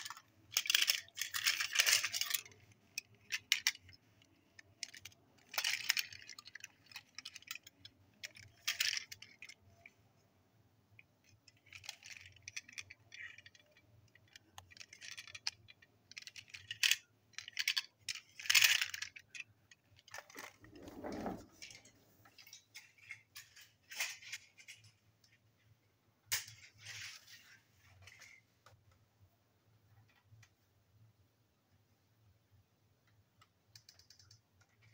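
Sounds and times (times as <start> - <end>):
toy train wagons clicking: 0.0 - 9.9, 10.9 - 25.0.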